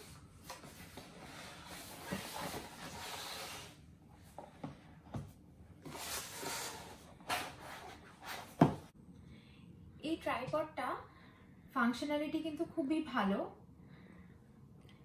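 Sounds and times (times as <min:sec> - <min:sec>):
cardboard rustling and scraping: 0:00.4 - 0:04.5, 0:05.8 - 0:08.9.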